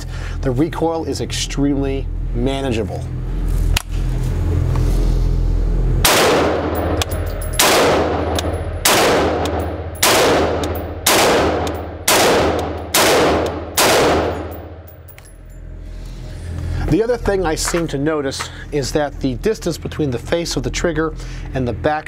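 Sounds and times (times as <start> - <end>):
rifle shots echoing indoors: 6.0 - 15.0.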